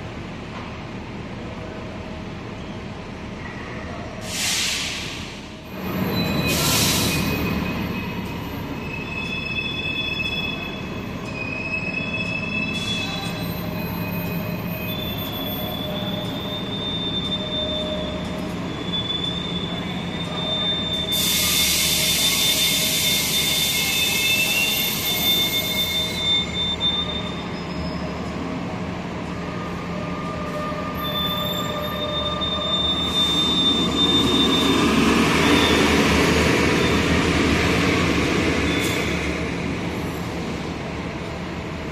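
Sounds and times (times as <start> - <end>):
buses running with high whine: 0.0 - 41.9
hiss of air: 4.2 - 5.5.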